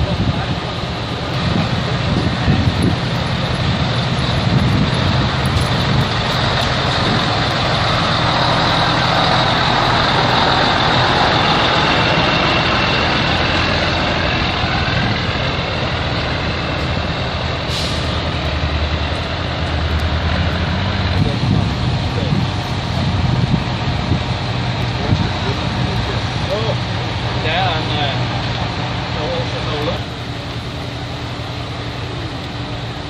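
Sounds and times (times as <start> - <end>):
heavy truck engines rumbling: 0.0 - 33.0
air brake hiss: 17.7 - 18.2.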